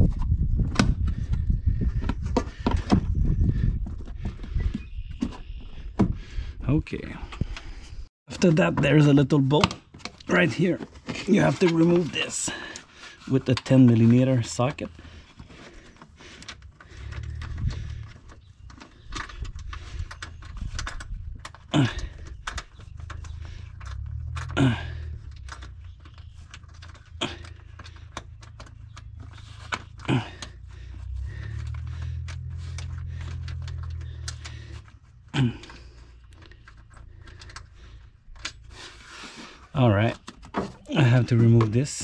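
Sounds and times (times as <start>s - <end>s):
plastic fittings clicking and creaking: 8.4s - 42.0s
low rumble of handling noise: 9.8s - 42.0s.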